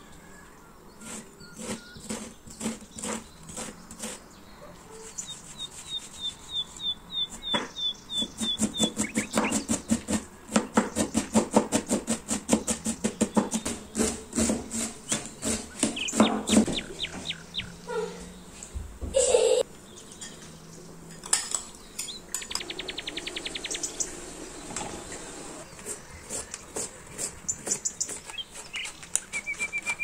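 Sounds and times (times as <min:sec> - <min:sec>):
bird chirping: 0:00.0 - 0:11.5, 0:12.5 - 0:19.0, 0:19.7 - 0:30.0
knife chopping on cutting board: 0:07.4 - 0:16.9.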